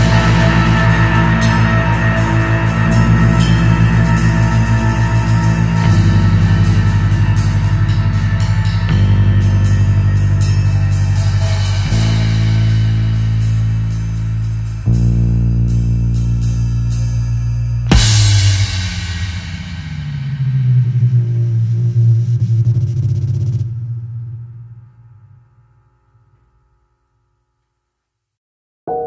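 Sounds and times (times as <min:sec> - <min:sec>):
drum kit with cymbals: 0:00.0 - 0:21.6
low guitar and bass chords: 0:00.0 - 0:23.2.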